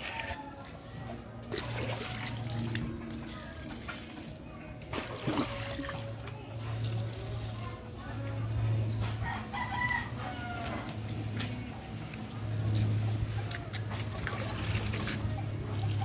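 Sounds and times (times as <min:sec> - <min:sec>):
rooster crowing: 0:09.2 - 0:11.0.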